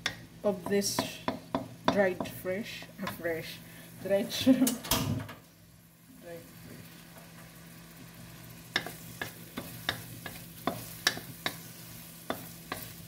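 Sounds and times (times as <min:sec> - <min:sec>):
shrimp sizzling in hot oil: 0:05.5 - 0:13.0
wooden spatula scraping a wok: 0:08.7 - 0:13.0.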